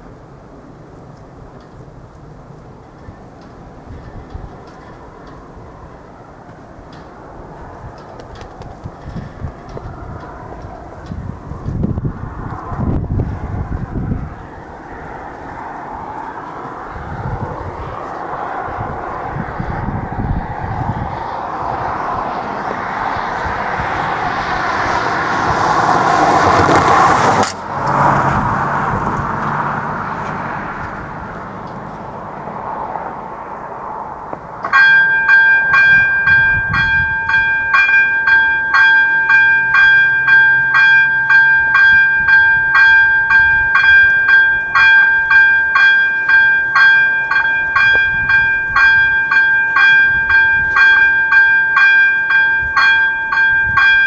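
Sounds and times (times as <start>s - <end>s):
vehicle passing: 1.3s - 54.0s
level crossing warning bell: 2.7s - 8.2s, 8.8s - 11.9s, 14.2s - 20.1s, 34.6s - 54.0s.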